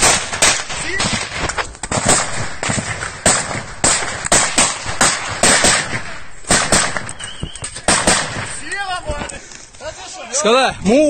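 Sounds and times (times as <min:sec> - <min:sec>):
rifle shots: 0:00.0 - 0:08.6.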